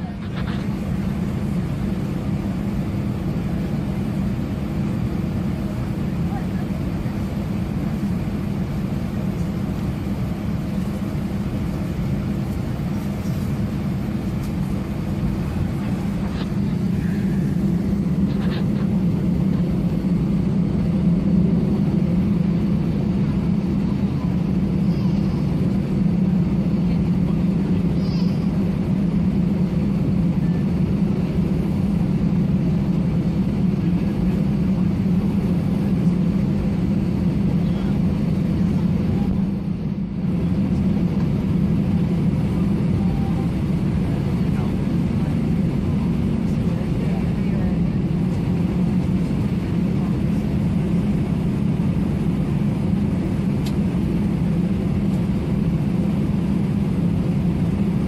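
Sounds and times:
jet cabin engine hum: 0.0s - 58.0s.

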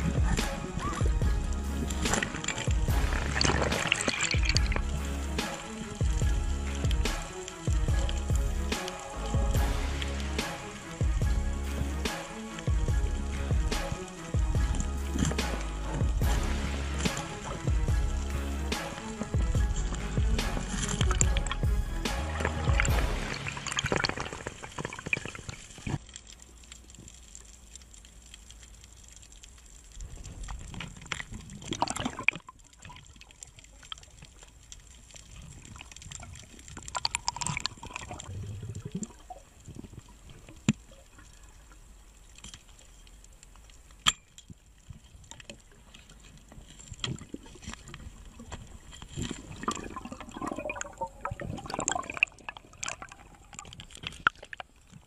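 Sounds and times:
water sloshing and splashing: 0.0s - 55.0s.

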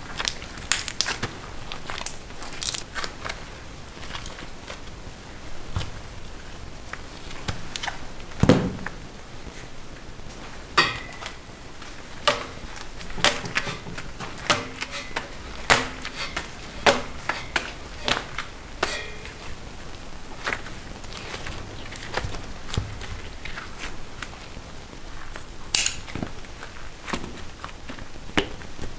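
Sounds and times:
dull thump: 8.4s - 9.0s.

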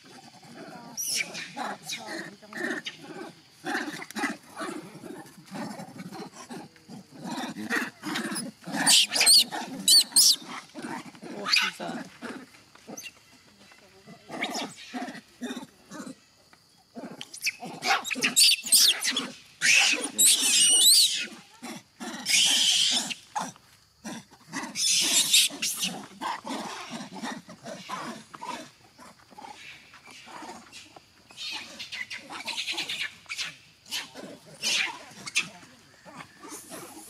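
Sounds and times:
monkeys screaming: 8.2s - 10.5s, 17.4s - 21.4s, 22.1s - 23.2s, 24.6s - 27.2s, 31.3s - 35.6s.

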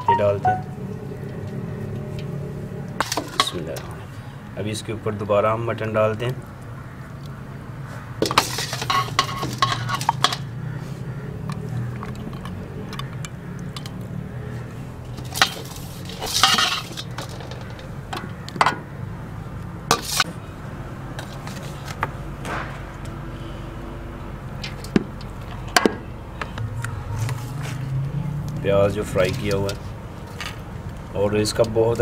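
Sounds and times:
steady low hum: 0.0s - 5.2s
ladle clinking on cooking pot: 8.2s - 10.5s.

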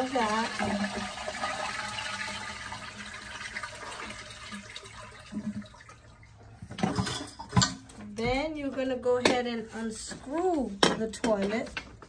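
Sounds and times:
toilet tank draining into bowl: 0.0s - 7.7s.

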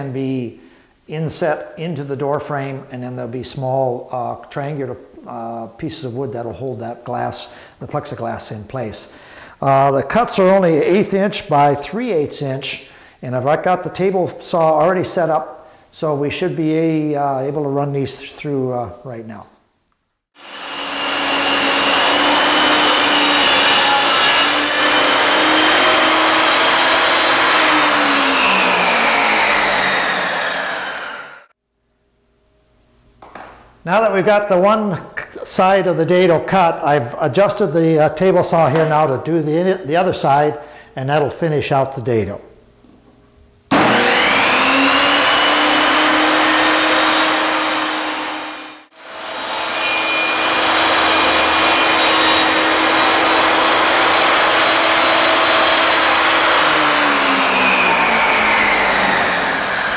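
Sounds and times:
table saw whine winding down: 20.4s - 31.5s, 43.7s - 59.9s.

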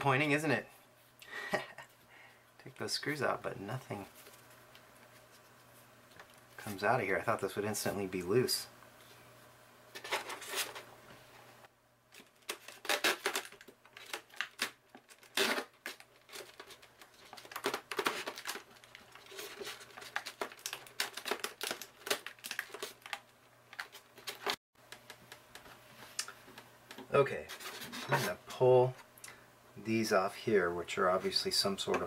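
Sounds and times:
tape crinkling: 12.1s - 26.4s.

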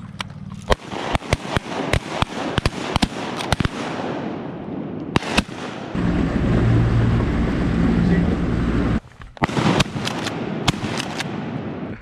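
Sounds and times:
shotguns firing: 0.7s - 6.0s, 9.4s - 11.9s.

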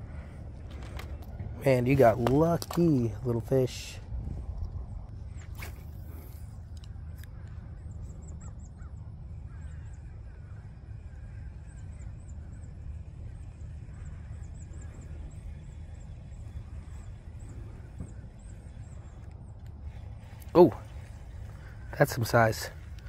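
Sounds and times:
low rumble: 0.0s - 23.0s
distant geese honking: 6.0s - 23.0s.

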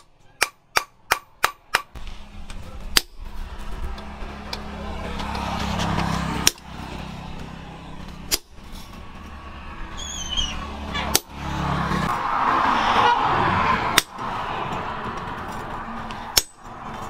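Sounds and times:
hammer striking metal punch: 0.0s - 2.0s, 16.3s - 16.7s.

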